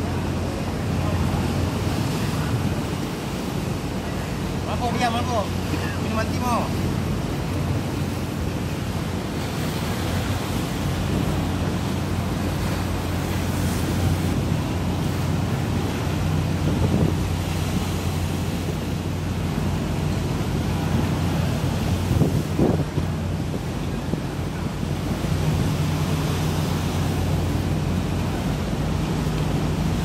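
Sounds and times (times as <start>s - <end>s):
choppy sea: 0.0s - 30.0s
ship engines droning: 0.0s - 30.0s
wind buffeting microphone: 6.7s - 30.0s.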